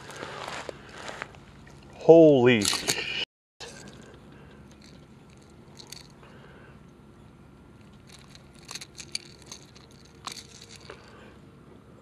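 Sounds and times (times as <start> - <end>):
clicks and crinkles of fish hook: 2.6 - 6.2, 7.8 - 11.2.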